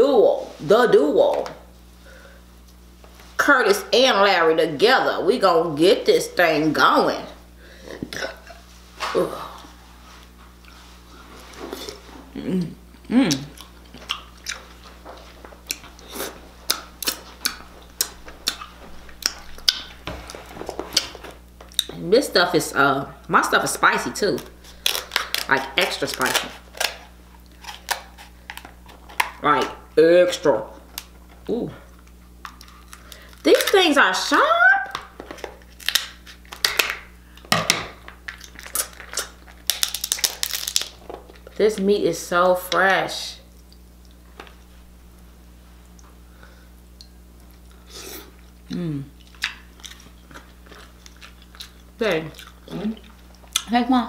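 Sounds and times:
wet chewing smacks: 13.3 - 21.9, 49.2 - 53.7
crab shell cracking: 24.5 - 29.4, 34.9 - 41.5.

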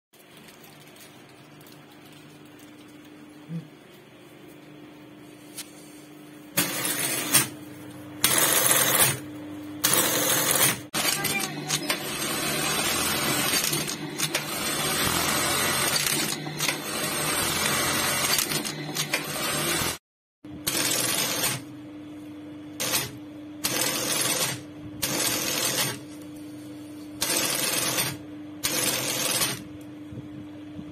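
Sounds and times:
sewing machine motor hum: 6.6 - 7.6, 8.2 - 9.2, 9.8 - 20.0, 20.6 - 21.7, 22.7 - 26.3, 27.1 - 29.8
sewing machine stitching: 9.8 - 20.0, 20.7 - 21.7, 22.8 - 26.0, 27.2 - 29.6.

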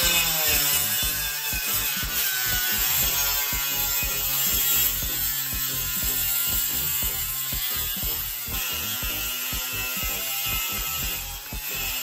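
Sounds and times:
angle grinder cutting plastic: 0.0 - 12.0.

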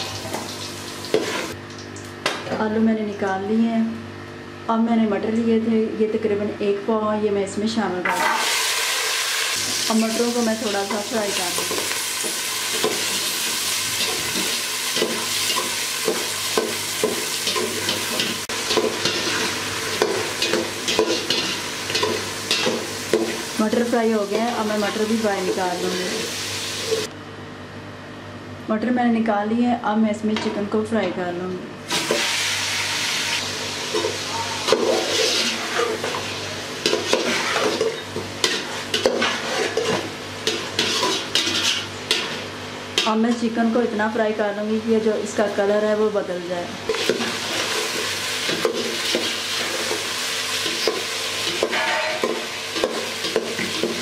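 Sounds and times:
peas sizzling in hot oil: 8.1 - 27.1, 31.9 - 43.1, 46.9 - 54.0
metal spoon scraping a pot: 36.8 - 42.4, 50.8 - 54.0.

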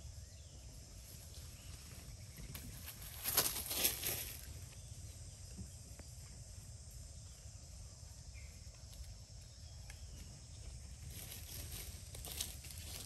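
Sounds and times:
crackles of dry leaves: 0.9 - 5.1, 8.6 - 13.0.

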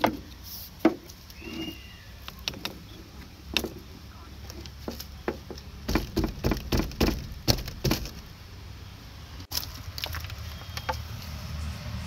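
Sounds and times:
sharp clicks and knocks: 2.2 - 8.3.

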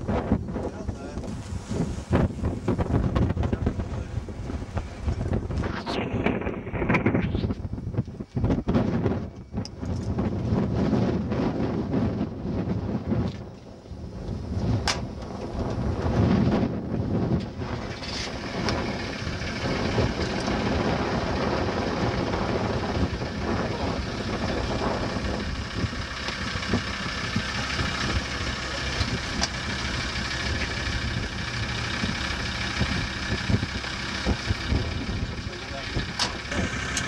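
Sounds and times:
roller starter turning motorcycle engine: 14.2 - 37.0.

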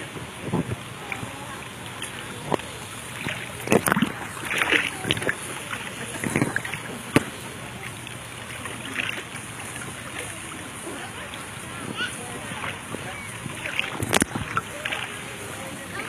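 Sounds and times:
pool water splashing: 0.0 - 16.0
steady hiss: 0.0 - 16.0.

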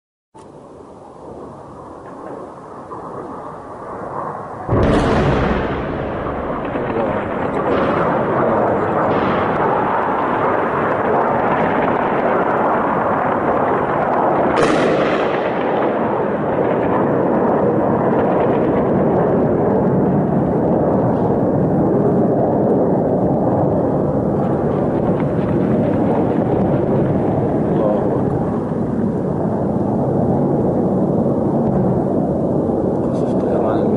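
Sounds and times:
heavy gunfire crackling: 1.9 - 31.0
sharp blast: 4.6 - 17.2.

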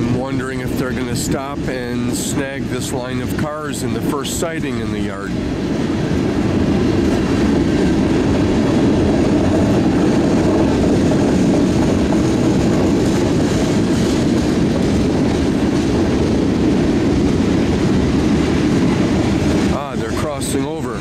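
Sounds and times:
train wheels rumbling on rails: 0.0 - 21.0.

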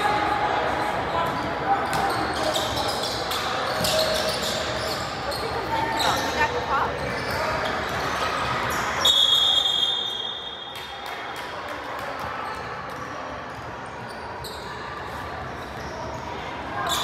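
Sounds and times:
referee's whistle: 9.0 - 10.7.

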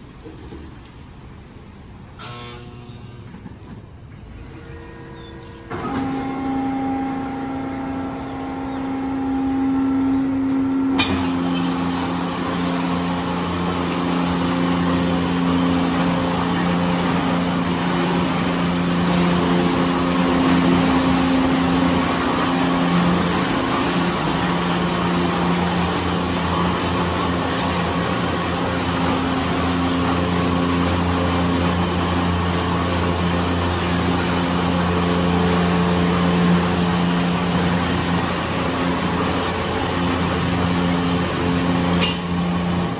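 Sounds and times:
machine hum: 0.0 - 42.9
water spray and spinning brushes: 10.9 - 42.9.

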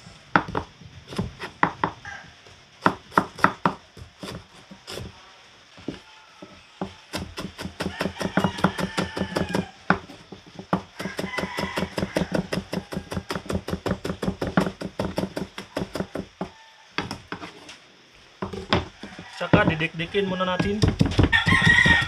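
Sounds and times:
knife chopping on cutting board: 6.8 - 10.0, 10.6 - 16.4, 20.6 - 22.0.

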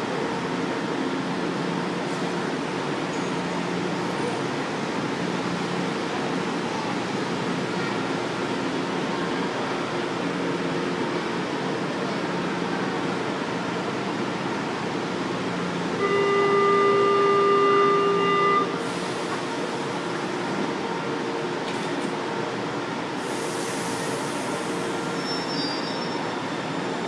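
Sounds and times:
train equipment humming: 0.0 - 25.2
electronic warning tone: 16.0 - 18.8.

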